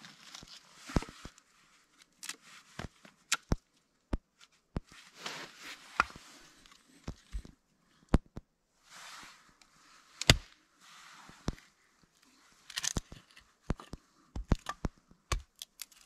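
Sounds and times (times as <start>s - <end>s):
rustling: 4.4s - 7.5s
hatchet chopping wood: 10.2s - 10.4s, 14.4s - 15.7s.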